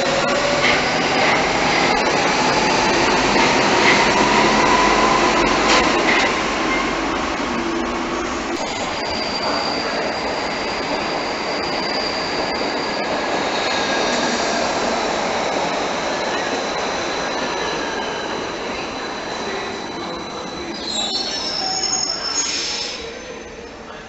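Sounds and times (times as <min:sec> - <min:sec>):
train wheels rumbling on rails: 0:00.0 - 0:20.8
high wheel squeal: 0:08.7 - 0:14.4, 0:16.3 - 0:23.6.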